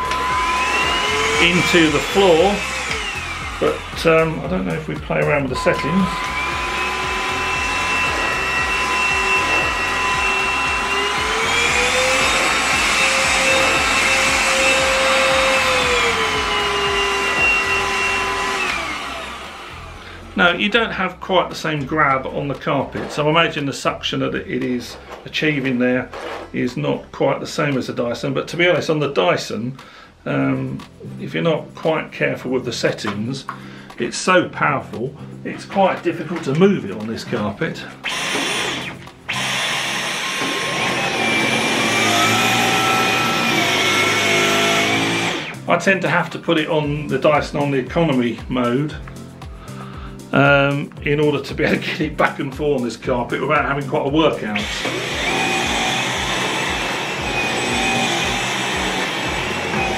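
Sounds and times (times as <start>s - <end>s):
stick vacuum running on carpet: 0.0s - 4.8s, 5.4s - 20.3s, 38.1s - 45.6s, 54.5s - 59.9s.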